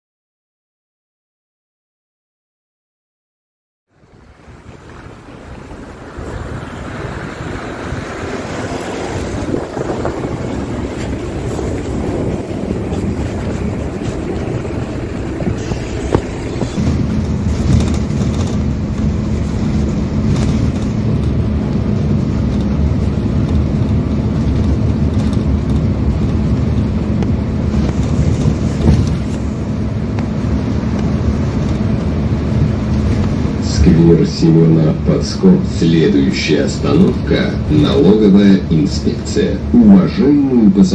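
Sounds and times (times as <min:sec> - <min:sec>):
bus engine drone: 0:03.9 - 0:40.9
wind on microphone: 0:04.2 - 0:34.1
street noise: 0:04.3 - 0:40.9.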